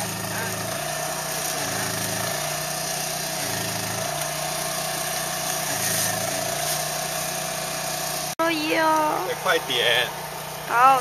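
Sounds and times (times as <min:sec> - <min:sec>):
gas stove burner roaring: 0:00.0 - 0:11.0.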